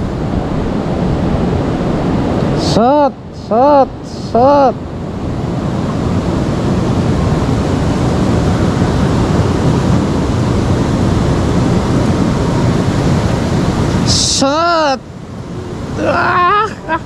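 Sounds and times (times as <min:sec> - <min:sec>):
river water rushing: 0:00.0 - 0:17.0.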